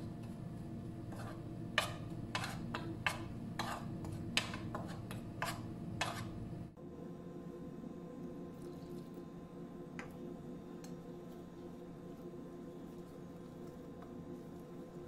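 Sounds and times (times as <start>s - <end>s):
steady low hum: 0.0s - 15.0s
metal spoon scraping ceramic bowl: 1.1s - 6.4s.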